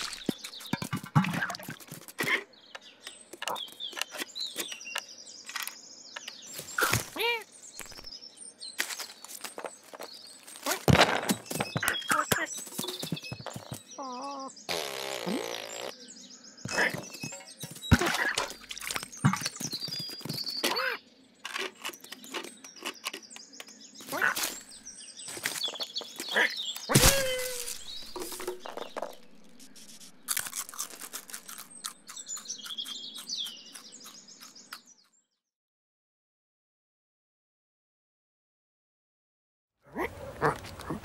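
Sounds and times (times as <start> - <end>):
small bird tweeting: 0.0 - 35.3.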